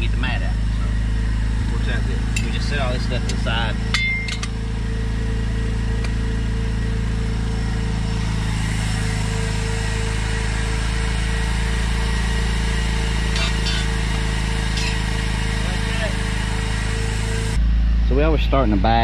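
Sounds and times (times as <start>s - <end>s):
small engine humming: 0.0s - 19.0s.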